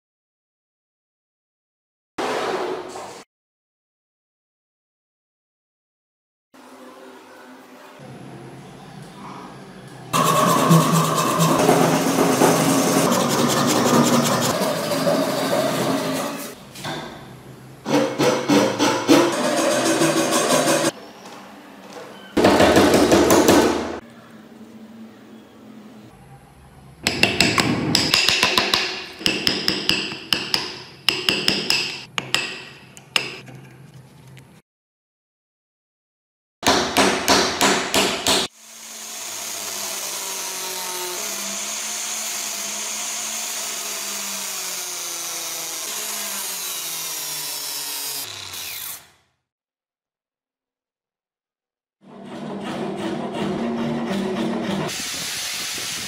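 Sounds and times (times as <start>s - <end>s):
power saw cutting wood: 10.1s - 16.6s, 19.0s - 21.0s, 38.4s - 49.2s
hammer tapping steel punch: 27.0s - 33.4s.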